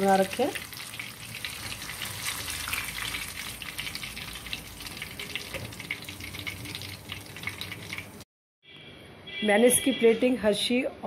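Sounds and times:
batter deep-frying in oil: 0:00.0 - 0:08.2.

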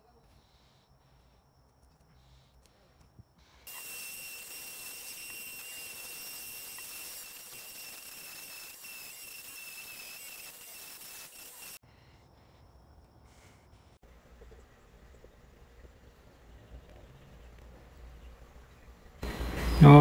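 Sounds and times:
rotary tool high-pitched whine: 0:03.4 - 0:11.8.

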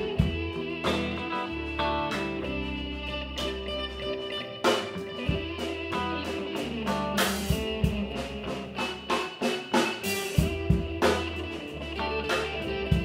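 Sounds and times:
guitar-led instrumental music: 0:00.0 - 0:13.0
drum hits: 0:04.7 - 0:11.5.

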